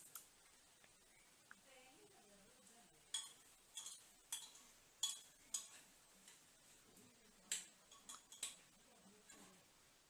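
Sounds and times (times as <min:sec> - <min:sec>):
metal spoon clinking on pot: 0:03.1 - 0:05.9, 0:07.5 - 0:09.5.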